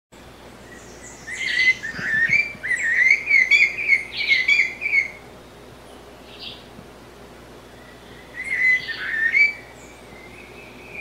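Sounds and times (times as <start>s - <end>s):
parrot singing whistled notes: 8.4s - 9.6s.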